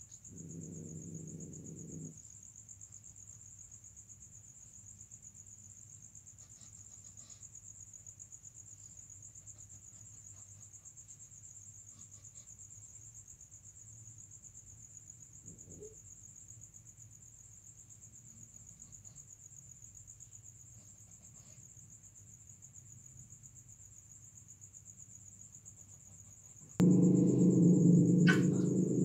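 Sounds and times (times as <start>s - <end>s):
crickets chirping: 0.2s - 6.2s, 26.8s - 29.0s
low hum: 26.8s - 29.0s.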